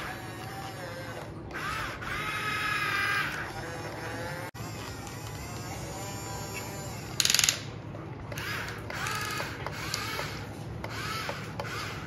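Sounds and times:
buzzing gear rattle: 0:00.0 - 0:07.7
toy electric motors whirring: 0:00.0 - 0:12.0.

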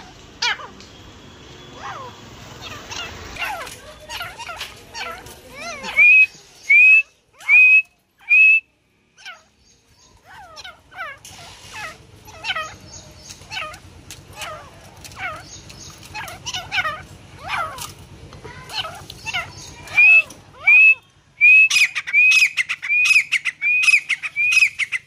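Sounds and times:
francolins whistled calls: 0:05.7 - 0:10.7, 0:19.1 - 0:25.0.

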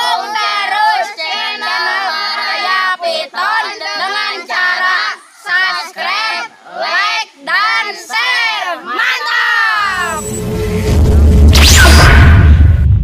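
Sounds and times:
children singing together: 0:00.0 - 0:10.0.

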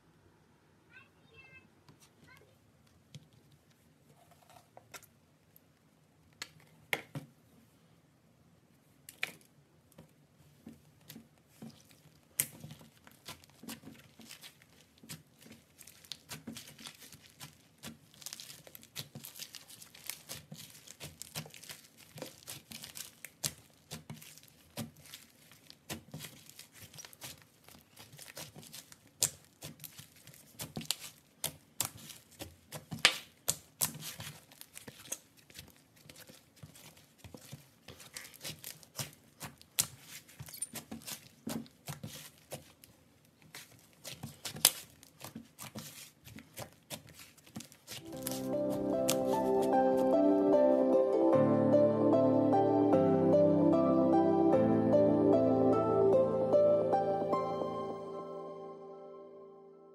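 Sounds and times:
slime crackling and popping: 0:11.0 - 0:50.2.

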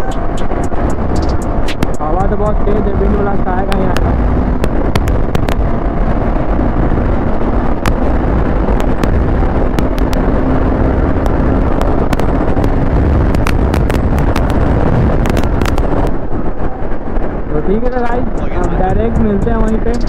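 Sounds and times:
motorcycle engine accelerating: 0:00.0 - 0:16.5
wind buffeting microphone: 0:00.0 - 0:20.0
sharp crackles: 0:01.2 - 0:16.2.

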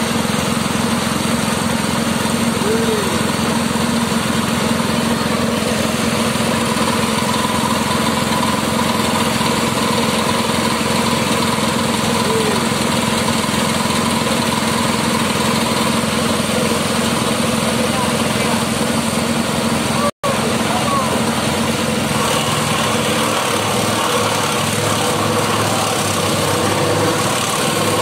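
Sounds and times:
grass chopper engine droning: 0:00.0 - 0:28.0.

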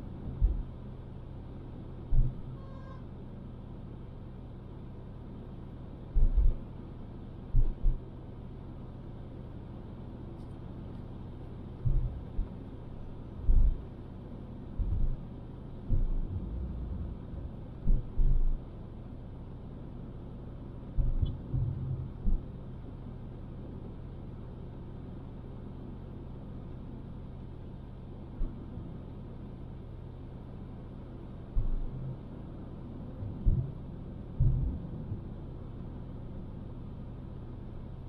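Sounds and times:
car engine and tyre rumble: 0:00.0 - 0:38.0
low thumps: 0:13.4 - 0:13.8, 0:15.9 - 0:18.6, 0:34.4 - 0:34.9.

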